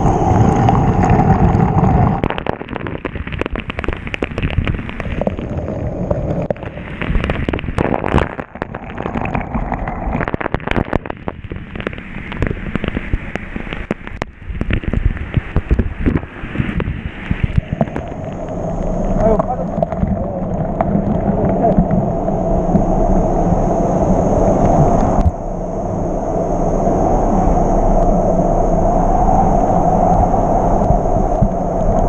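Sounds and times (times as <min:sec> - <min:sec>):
heavy water spray spattering: 0:00.0 - 0:23.2.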